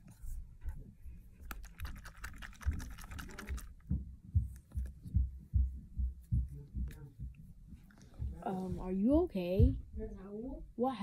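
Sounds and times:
soft low thumps: 2.5s - 10.9s.

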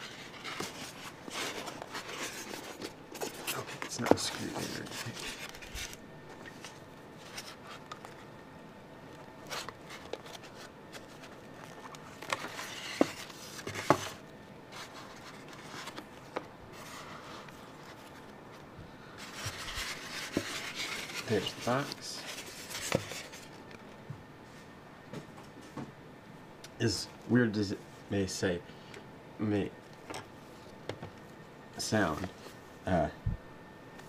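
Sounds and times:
styrofoam rubbing and rustling: 19.2s - 23.5s.

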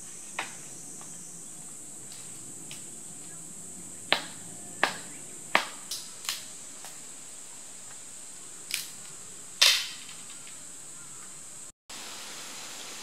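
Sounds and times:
insects droning: 0.0s - 13.0s
dry branches snapping: 4.1s - 7.0s, 8.7s - 10.6s.

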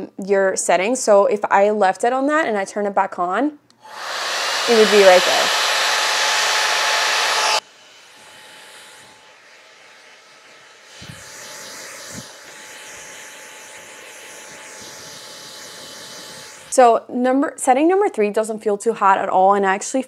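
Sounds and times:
hair dryer brush blowing: 3.8s - 16.9s.

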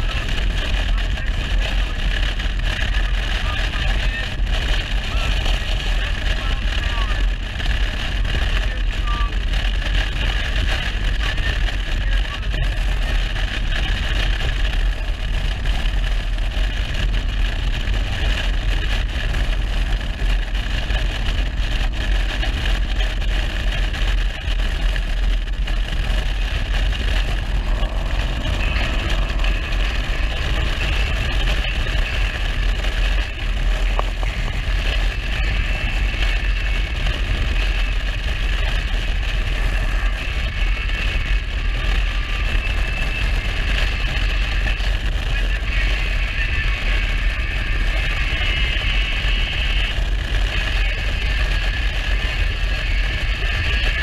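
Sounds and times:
road noise: 0.0s - 54.0s
wind rumbling on microphone: 0.0s - 54.0s
motorcycle engine: 12.7s - 46.2s.

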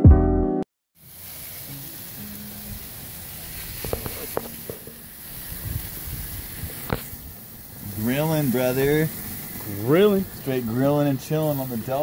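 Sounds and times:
chicken wings sizzling on grill: 1.0s - 12.0s.

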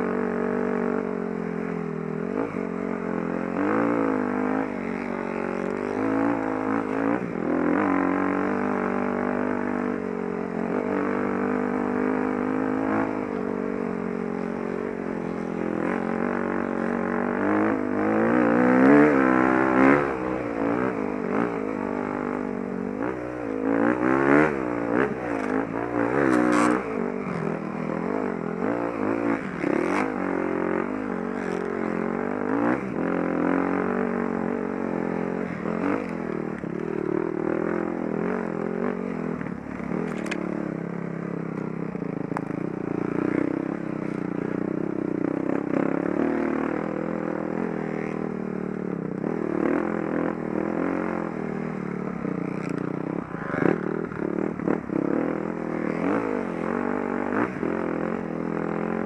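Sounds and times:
dirt bike engine revving: 10.6s - 40.8s, 49.2s - 59.0s.

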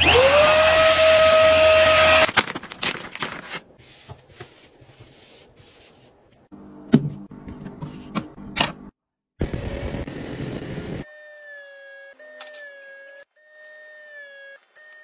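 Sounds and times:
handheld vacuum whine: 0.0s - 2.3s.

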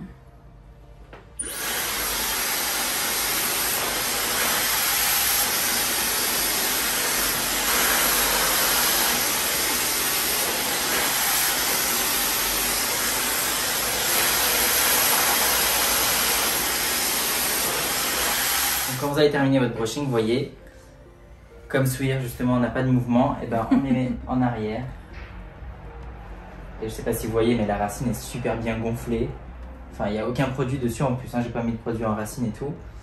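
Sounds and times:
hair dryer blowing with whine: 1.4s - 19.4s.

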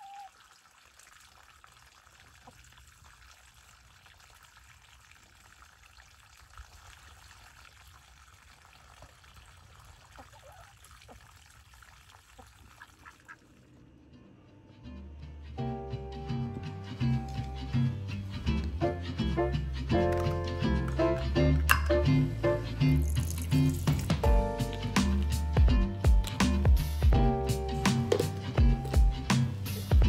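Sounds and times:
faint outdoor ambience: 0.0s - 30.0s
chickens clucking: 10.1s - 11.3s.

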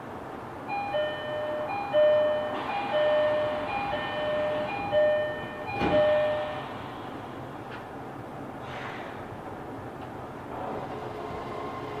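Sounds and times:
electronic two-tone chime: 0.7s - 6.7s.

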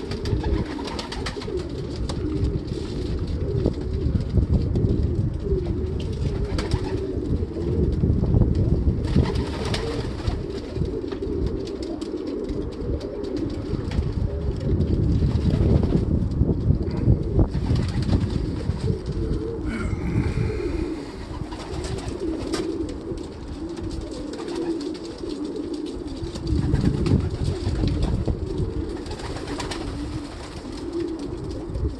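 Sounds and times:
pigeons cooing: 0.0s - 31.9s
low rumbles: 13.7s - 22.3s.

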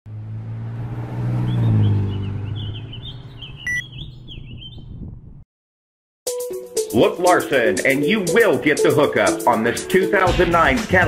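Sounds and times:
vehicle engine hum: 0.0s - 5.4s
small birds chirping: 1.5s - 5.2s
short electronic beep: 3.6s - 3.9s.

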